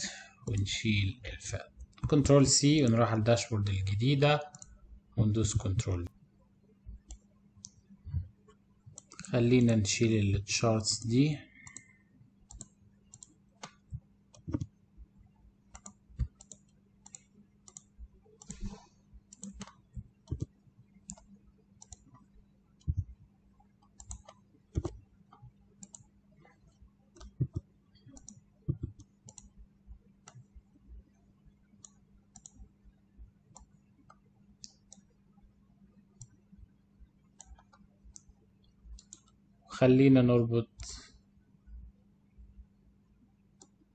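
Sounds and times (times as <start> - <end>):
faint low hum: 0.0 - 43.9
computer mouse clicking: 1.8 - 2.3, 4.4 - 4.8, 7.0 - 7.9, 8.5 - 9.8, 11.0 - 14.8, 15.7 - 32.8, 33.4 - 35.2, 36.0 - 36.5, 37.2 - 39.4, 43.6 - 43.9.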